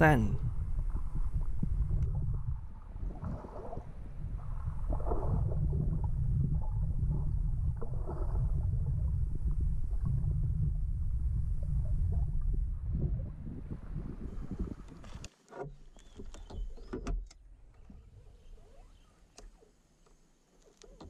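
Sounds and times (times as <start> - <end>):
muffled underwater rumble: 0.0 - 15.2.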